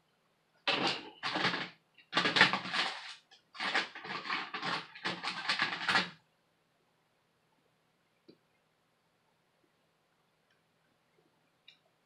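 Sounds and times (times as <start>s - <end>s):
fingers rubbing on ribbon cable: 0.7s - 6.2s.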